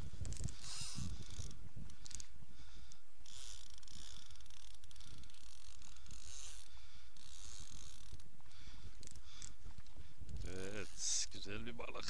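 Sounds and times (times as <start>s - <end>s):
fishing reel gears ticking: 2.9s - 8.3s.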